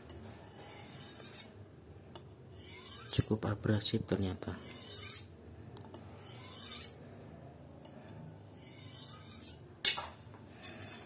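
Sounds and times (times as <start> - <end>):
knife scraping on sharpening rod: 0.2 - 1.6, 2.5 - 3.4, 4.4 - 5.3, 6.0 - 7.0, 7.8 - 10.0.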